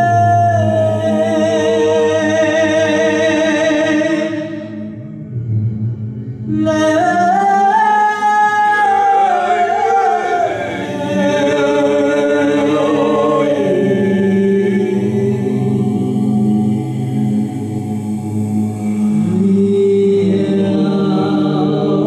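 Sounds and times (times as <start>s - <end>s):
high voice singing long notes: 0.0s - 22.0s
low voices droning: 4.5s - 22.0s.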